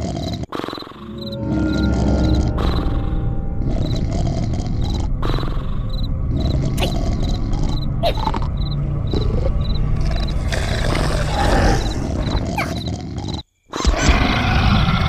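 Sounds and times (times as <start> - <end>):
loud animal-like roar: 10.1 - 12.7, 13.8 - 15.0.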